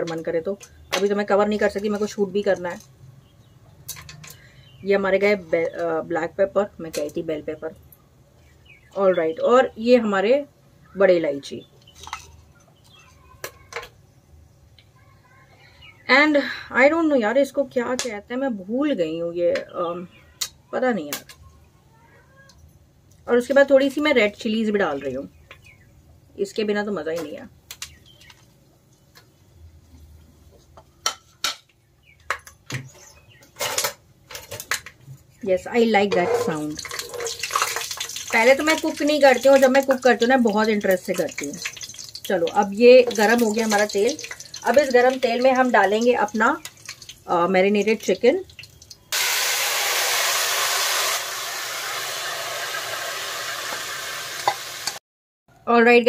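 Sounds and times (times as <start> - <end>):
spices popping in hot oil: 36.5 - 55.0.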